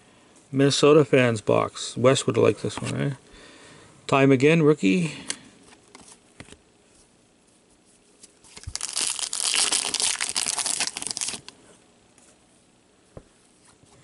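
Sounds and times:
foil wrapper crinkling: 0:08.3 - 0:11.6.

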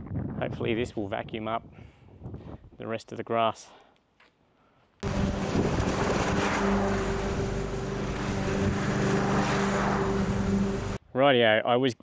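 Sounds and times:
lawn mower engine running: 0:05.0 - 0:11.0.

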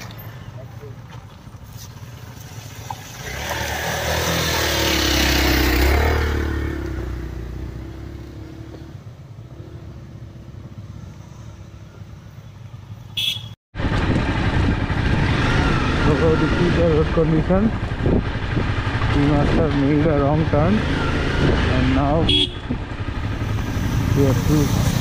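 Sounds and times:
quieter motorcycle engine: 0:00.0 - 0:25.0
motorcycle splashing through water: 0:01.4 - 0:06.6
motorcycle engine: 0:02.0 - 0:25.0.

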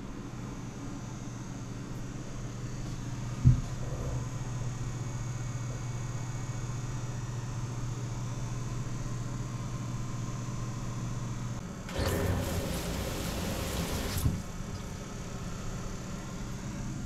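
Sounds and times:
shower head spraying water: 0:11.9 - 0:14.5.

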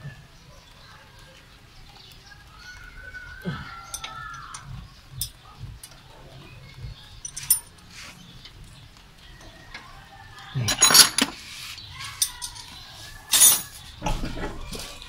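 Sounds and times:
metal tools clinking: 0:07.2 - 0:07.8, 0:10.6 - 0:11.4, 0:12.0 - 0:13.8.

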